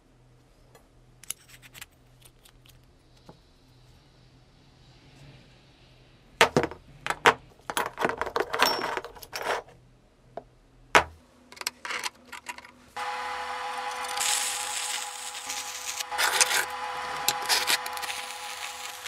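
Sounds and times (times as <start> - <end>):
metal parts clinking and knocking: 6.4 - 9.7, 11.0 - 12.8
welding arc: 13.0 - 19.0.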